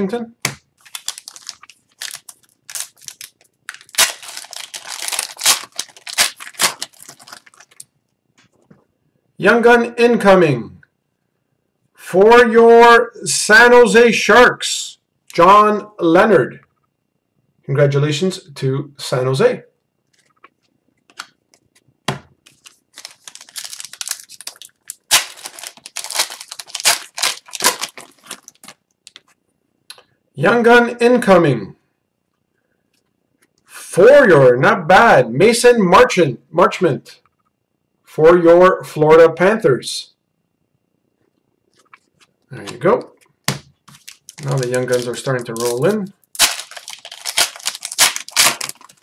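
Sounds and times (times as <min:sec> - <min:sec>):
plastic sleeve crinkling: 0:00.8 - 0:07.9, 0:22.4 - 0:29.4, 0:41.7 - 0:49.0.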